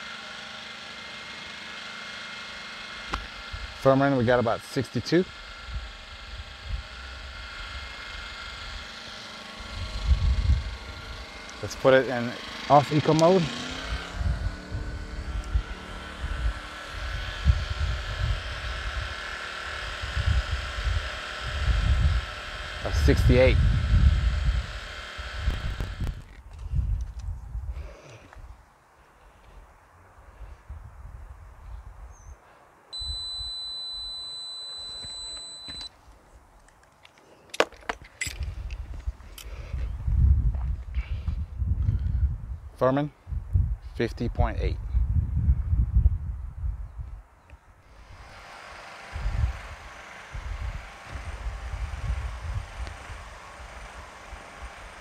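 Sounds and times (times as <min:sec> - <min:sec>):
generator engine hum: 0:00.0 - 0:30.6, 0:32.4 - 0:42.8, 0:47.1 - 0:55.0
low rumbling: 0:05.7 - 0:27.9
low rumble: 0:13.8 - 0:18.4
high-pitched electronic beep: 0:33.0 - 0:35.9.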